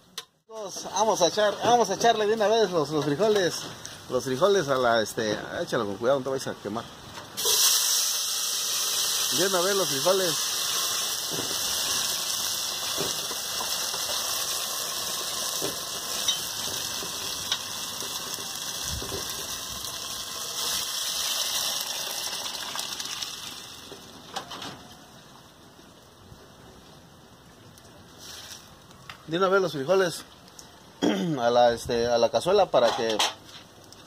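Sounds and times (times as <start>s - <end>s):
beans sizzling in hot fat: 7.4s - 24.3s, 27.6s - 30.7s.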